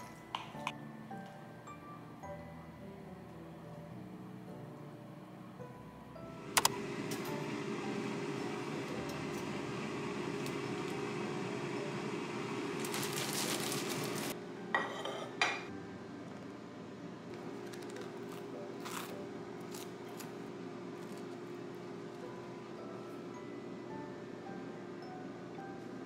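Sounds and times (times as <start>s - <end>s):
knife clinking against plate: 14.8s - 15.7s.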